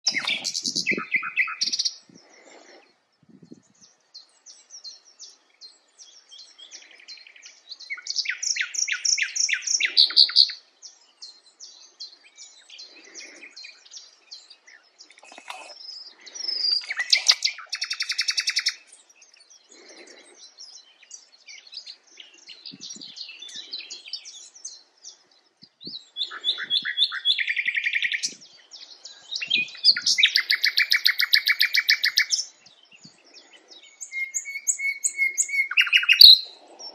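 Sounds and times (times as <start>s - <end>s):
nightingale singing: 0.0s - 36.9s
person breathing softly: 2.0s - 3.2s, 12.6s - 14.2s, 15.1s - 17.6s, 19.5s - 20.8s, 32.9s - 34.1s, 36.4s - 36.9s.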